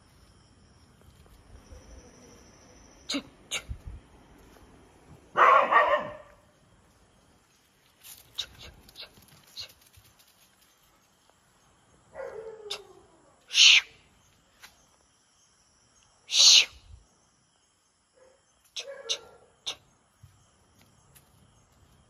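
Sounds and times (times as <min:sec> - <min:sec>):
dog paws scuffing on paving: 0:04.3 - 0:11.5, 0:20.2 - 0:22.0.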